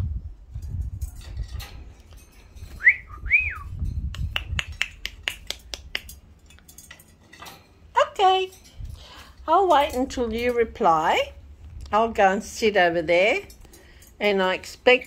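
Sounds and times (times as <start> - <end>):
two-note whistle: 2.8 - 3.7
quick sharp clicks: 4.1 - 6.2.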